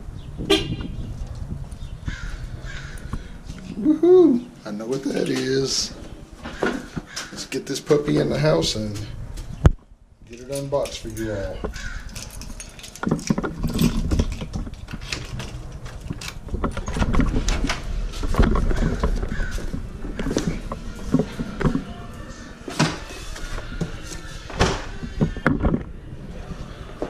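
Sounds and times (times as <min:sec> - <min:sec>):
footsteps: 0:04.8 - 0:09.8, 0:10.9 - 0:25.9
front door opening: 0:10.3 - 0:27.0.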